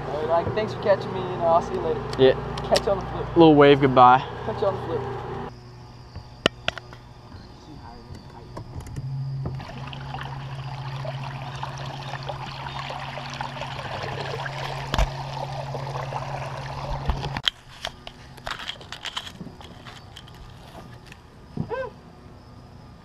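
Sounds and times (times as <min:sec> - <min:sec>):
steady low hum: 0:00.0 - 0:23.0
water rushing along boat hull: 0:09.4 - 0:17.4.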